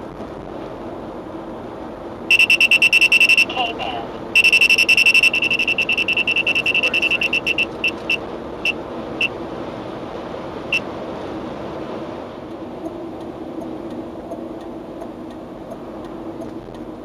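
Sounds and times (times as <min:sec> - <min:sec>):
road and engine hum in car: 0:00.0 - 0:17.0
radar detector beeping: 0:02.3 - 0:03.6, 0:04.4 - 0:09.3.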